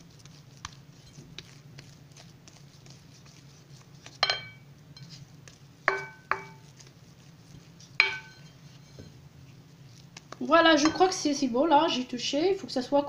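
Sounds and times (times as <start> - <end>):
mixing bowl knocking and ringing: 4.2 - 5.2, 5.9 - 6.7, 8.0 - 9.2, 10.8 - 11.2.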